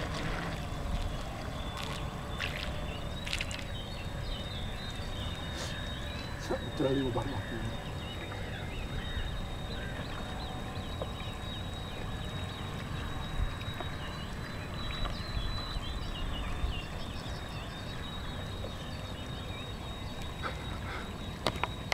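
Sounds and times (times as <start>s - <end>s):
birds chirping: 0.0s - 21.9s
faint high whine: 0.0s - 21.9s
wind rumble on microphone: 0.0s - 21.9s.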